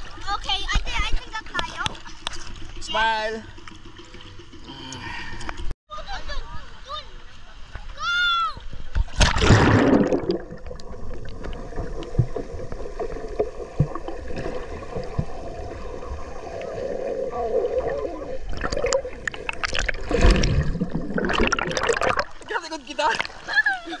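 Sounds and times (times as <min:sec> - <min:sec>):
water sloshing and gurgling: 0:00.0 - 0:05.7, 0:08.6 - 0:24.0
water splashing: 0:08.7 - 0:24.0.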